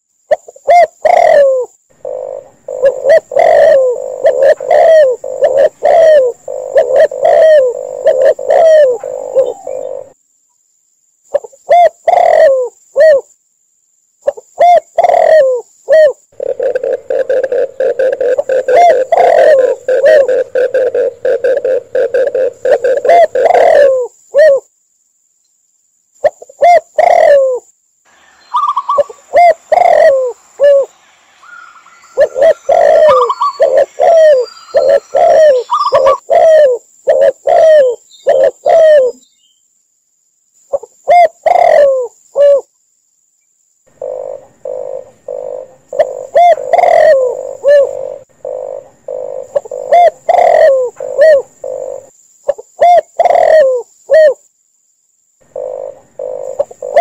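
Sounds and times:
doves cooing: 0.4 - 10.2, 11.3 - 13.3, 14.3 - 24.6, 26.2 - 27.6, 28.5 - 39.2, 40.7 - 42.7, 43.9 - 54.4, 55.5 - 57.0
rough pulsed coos: 1.0 - 10.2, 15.0 - 24.6, 26.6 - 39.2, 43.9 - 52.1, 55.5 - 57.0.

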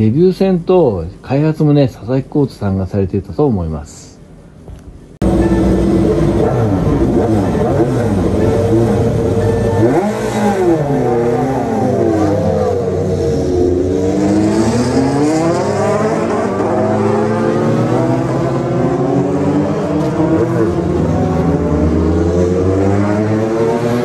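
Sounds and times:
race car engines revving: 5.2 - 24.0.

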